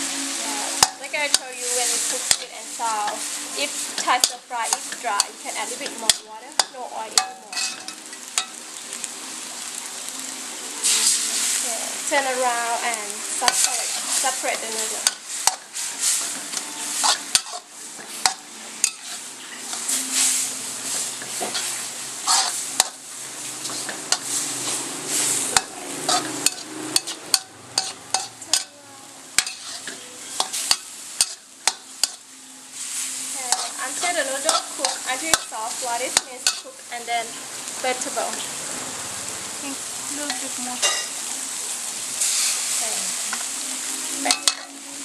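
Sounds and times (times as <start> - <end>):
noodles sizzling in a wok: 0.0 - 45.0
metal spatula scraping a wok: 0.7 - 8.6, 10.8 - 11.6, 13.4 - 37.4, 40.2 - 41.3, 42.2 - 43.5, 44.2 - 44.8.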